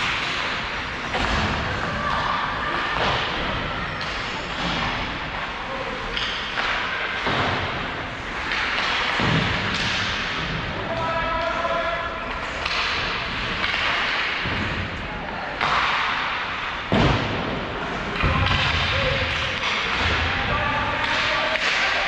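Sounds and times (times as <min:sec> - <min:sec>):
hockey thuds and knocks: 0:00.0 - 0:05.2, 0:06.0 - 0:10.8, 0:16.8 - 0:20.4.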